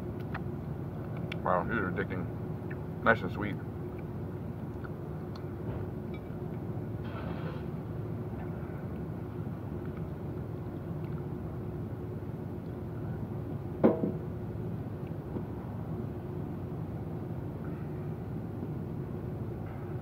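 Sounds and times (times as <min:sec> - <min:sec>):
faint hum: 0:00.0 - 0:20.0
low background rumble: 0:00.0 - 0:20.0
sharp knock: 0:13.8 - 0:14.2.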